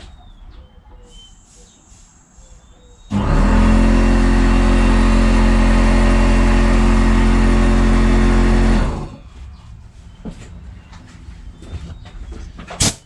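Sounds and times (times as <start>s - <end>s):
air compressor running: 3.1s - 9.3s.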